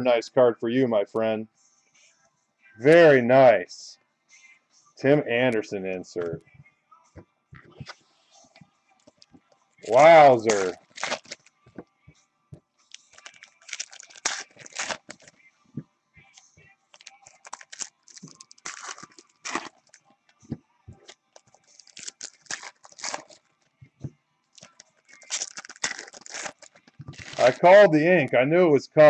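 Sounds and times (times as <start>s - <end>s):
cards being shuffled: 9.9s - 11.5s, 13.0s - 15.3s, 24.6s - 27.8s
foil wrappers crinkling and tearing: 9.9s - 11.5s, 12.9s - 15.3s, 16.9s - 20.0s, 21.0s - 23.6s, 24.6s - 27.9s.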